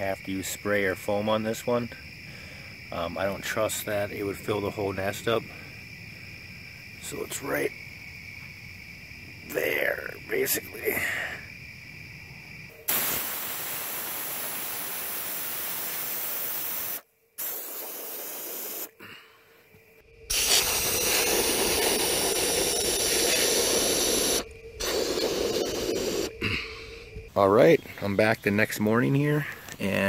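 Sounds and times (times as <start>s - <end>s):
aerosol can spraying hiss: 12.9s - 19.0s, 20.3s - 26.4s.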